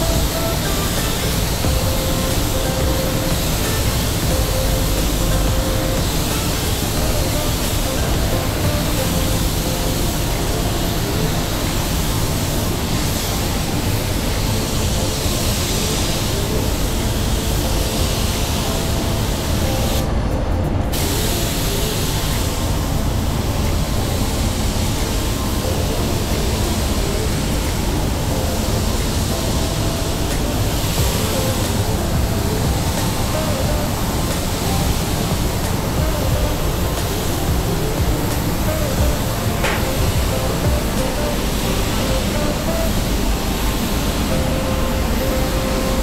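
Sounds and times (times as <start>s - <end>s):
spray gun hissing: 0.0s - 20.1s, 20.9s - 46.0s.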